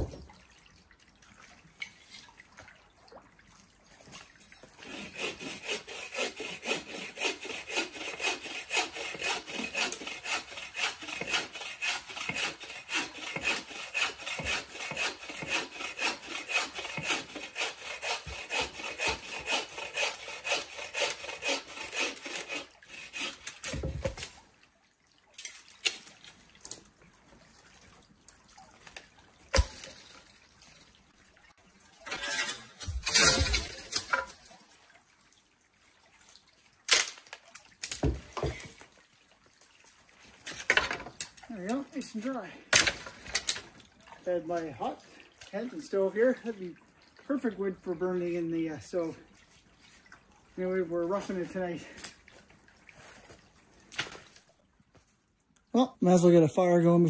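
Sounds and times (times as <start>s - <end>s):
hand saw cutting wood: 4.7s - 24.4s, 29.5s - 30.3s, 32.0s - 34.4s, 36.9s - 38.8s, 40.4s - 43.7s, 50.6s - 52.2s.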